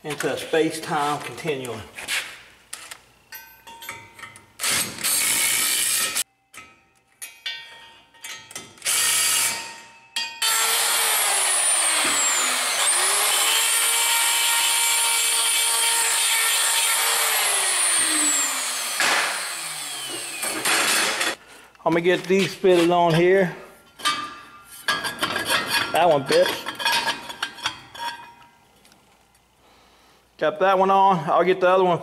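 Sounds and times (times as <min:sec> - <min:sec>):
cordless drill bursts: 0:10.4 - 0:21.4
die grinder whine: 0:10.4 - 0:21.4.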